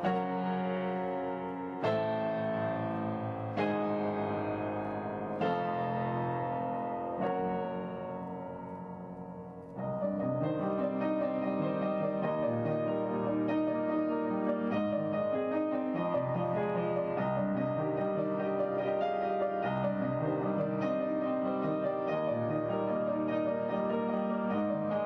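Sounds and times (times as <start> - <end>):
slow piano music: 0.0 - 25.0.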